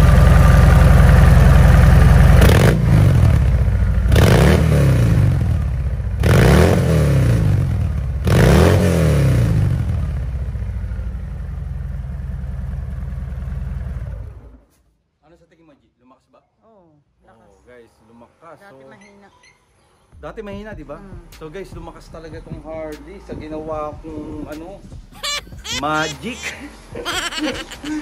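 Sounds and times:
motorcycle engine idling: 0:00.0 - 0:02.4, 0:03.3 - 0:04.1
motorcycle engine revving: 0:01.8 - 0:10.1.

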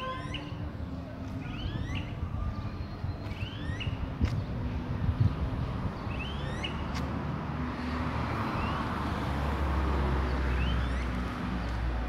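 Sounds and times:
bird whistled calls: 0:00.0 - 0:00.6, 0:01.5 - 0:04.1, 0:06.1 - 0:06.8, 0:10.5 - 0:11.2
street traffic rumble: 0:00.0 - 0:12.0
vehicle passing: 0:04.6 - 0:12.0.

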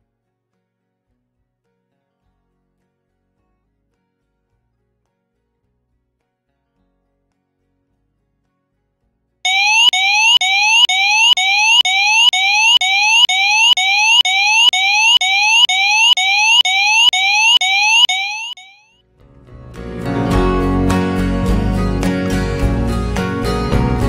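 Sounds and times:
electronic alarm rising chirp: 0:09.5 - 0:18.8.

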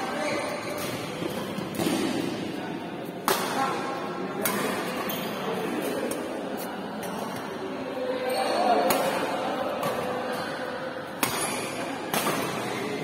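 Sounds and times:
badminton racket hitting shuttlecock: 0:11.1 - 0:12.8.

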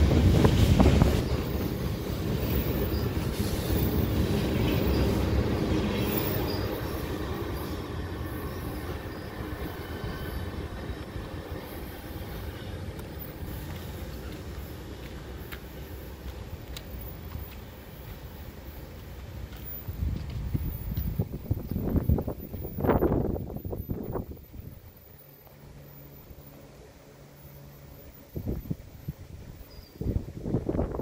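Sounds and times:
train wheels rumbling and clattering: 0:00.0 - 0:29.6
high wheel squeal: 0:01.2 - 0:14.8.

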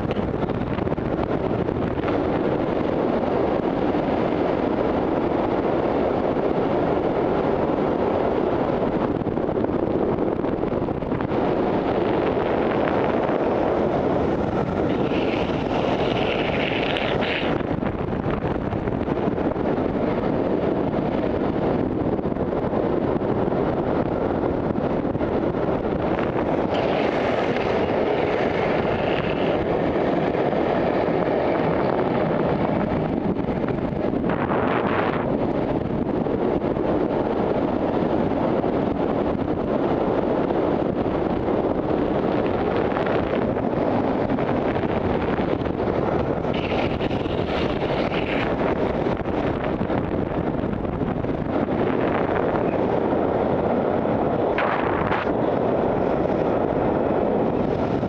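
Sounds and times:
longboard wheels rolling on asphalt: 0:00.0 - 0:58.0
wind rushing over microphone: 0:00.0 - 0:58.0.

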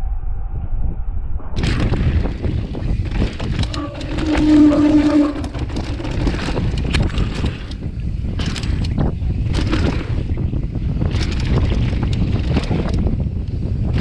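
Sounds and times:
wind buffeting microphone: 0:00.0 - 0:14.0
bike clicks and rattles: 0:01.6 - 0:14.0
tyres rumbling on dirt and stones: 0:01.6 - 0:14.0
short humming tone: 0:03.7 - 0:06.2.

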